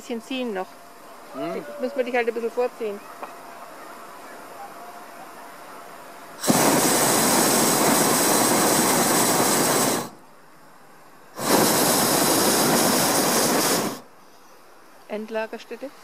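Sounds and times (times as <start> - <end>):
propane burner blasts hissing: 6.3 - 10.3, 11.3 - 14.4.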